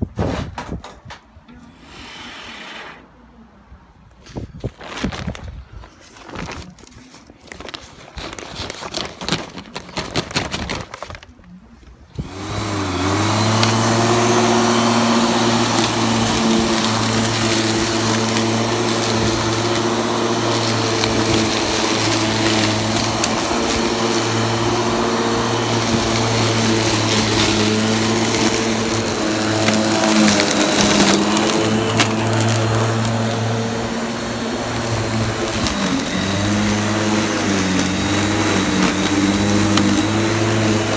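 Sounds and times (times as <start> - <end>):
electric lawn mower motor running: 12.2 - 40.9.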